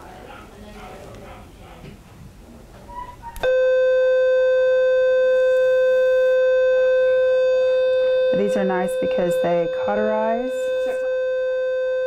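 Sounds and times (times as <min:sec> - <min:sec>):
steady activation beep: 0:03.4 - 0:12.0.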